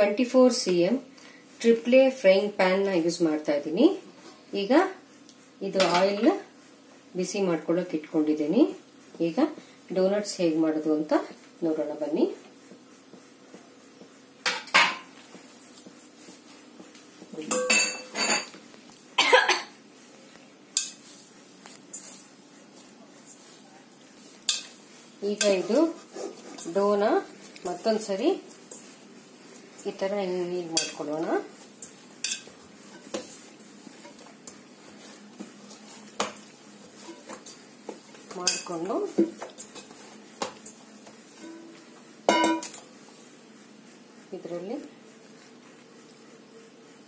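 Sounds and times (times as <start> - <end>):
dough handling sounds: 15.0 - 17.5, 19.8 - 46.3.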